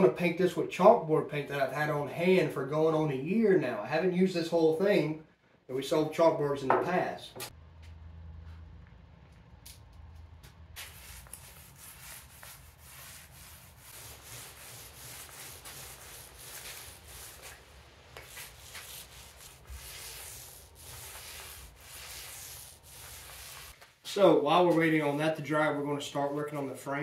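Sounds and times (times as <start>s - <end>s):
paint roller swishing: 10.7s - 24.1s.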